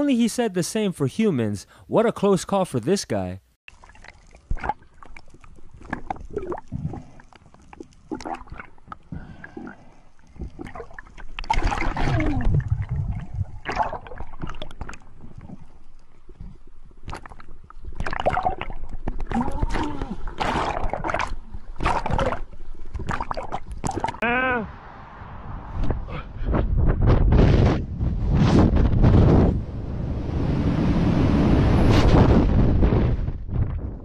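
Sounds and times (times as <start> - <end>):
water bubbling and gurgling: 3.7 - 24.2.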